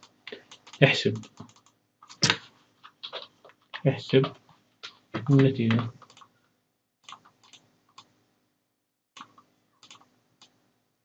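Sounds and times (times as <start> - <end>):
computer mouse clicks: 0.0 - 3.8, 5.7 - 6.3, 7.0 - 8.1, 9.2 - 10.6.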